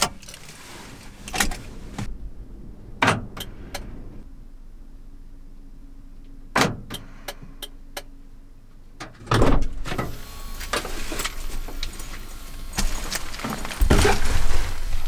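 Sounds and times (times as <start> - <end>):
outside noise: 0.0 - 15.0.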